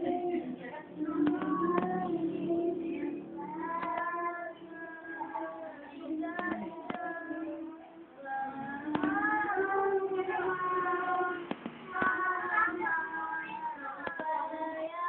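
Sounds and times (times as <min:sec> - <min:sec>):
children singing: 0:00.0 - 0:15.0
sharp clicks: 0:01.2 - 0:01.9, 0:03.8 - 0:04.1, 0:06.3 - 0:07.1, 0:08.9 - 0:09.2, 0:14.0 - 0:14.3.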